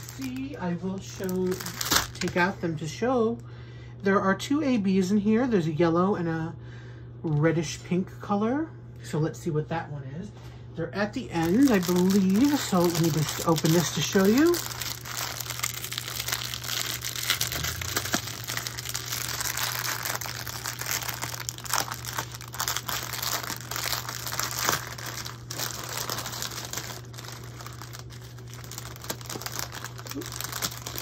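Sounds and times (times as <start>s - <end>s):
plastic bag crinkling: 0.0s - 2.6s, 11.3s - 31.0s.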